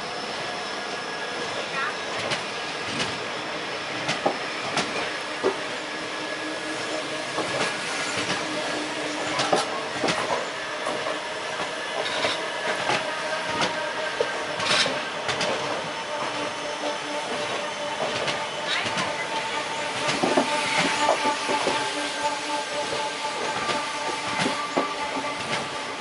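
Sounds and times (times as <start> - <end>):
train wheels rumbling on rail: 0.0 - 26.0
wheels clacking on rail joints: 6.4 - 26.0.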